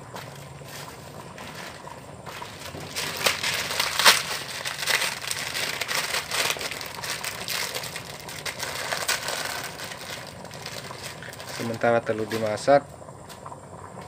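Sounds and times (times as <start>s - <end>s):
plastic packet crinkling: 2.4s - 12.5s.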